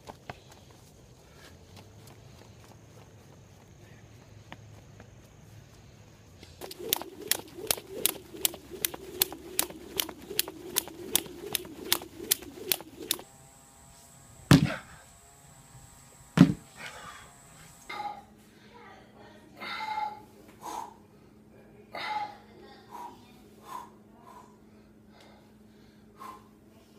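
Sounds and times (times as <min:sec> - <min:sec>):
steady hum: 0:05.3 - 0:18.6
jump rope slapping ground: 0:06.5 - 0:13.3, 0:14.5 - 0:15.0, 0:16.4 - 0:16.8
sledgehammer striking a tire: 0:14.5 - 0:15.0, 0:16.4 - 0:16.7.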